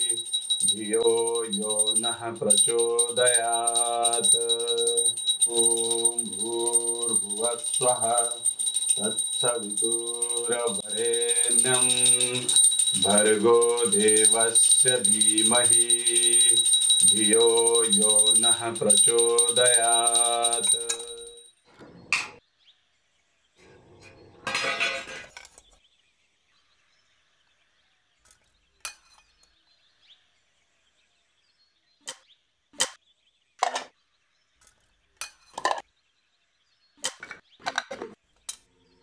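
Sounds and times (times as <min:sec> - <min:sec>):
steel containers clinking: 0:24.0 - 0:25.4, 0:35.2 - 0:35.8.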